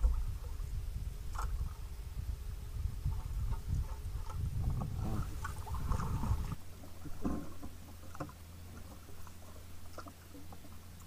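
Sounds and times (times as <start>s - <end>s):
low rumble: 0.0s - 11.0s
steady low hum: 0.0s - 11.0s
water sloshing around kayak: 0.0s - 11.0s
paddle knocking hull: 2.9s - 11.0s.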